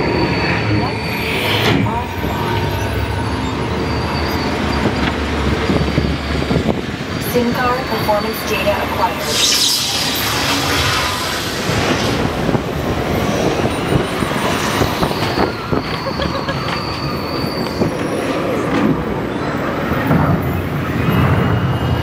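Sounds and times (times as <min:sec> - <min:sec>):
ride vehicle rumbling on track: 0:00.0 - 0:09.4, 0:10.2 - 0:22.0
thin high tone: 0:07.6 - 0:18.4.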